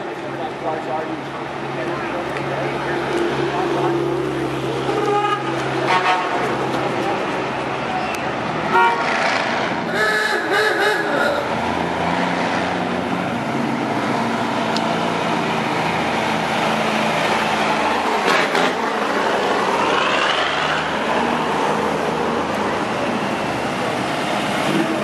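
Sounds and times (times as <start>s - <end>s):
truck engine passing slowly: 11.0s - 25.0s.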